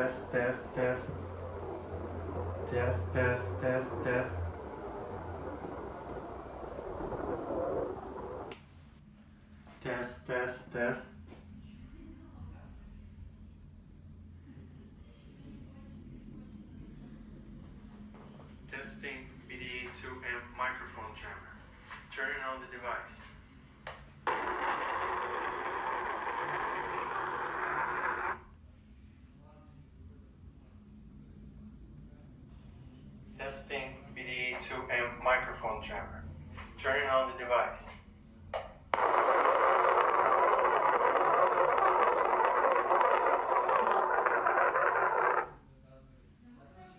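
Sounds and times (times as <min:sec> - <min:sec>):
voice on a recording: 0:00.0 - 0:08.5, 0:09.8 - 0:11.2, 0:18.7 - 0:23.4, 0:33.4 - 0:38.1
loud white noise hiss: 0:00.0 - 0:08.6.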